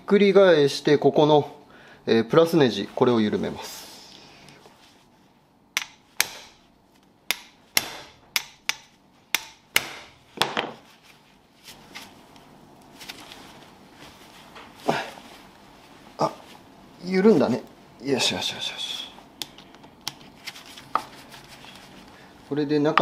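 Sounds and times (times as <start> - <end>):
hammer striking screw: 7.3 - 10.1.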